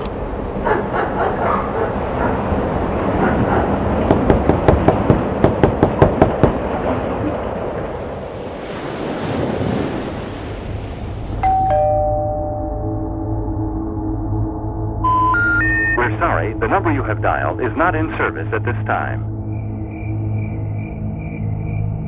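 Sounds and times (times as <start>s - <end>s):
two-note chime: 11.4s - 14.0s.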